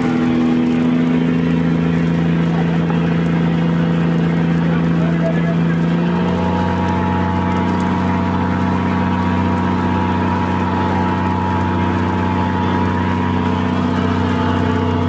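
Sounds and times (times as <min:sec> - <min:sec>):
boat engine low drone: 0:00.0 - 0:15.0.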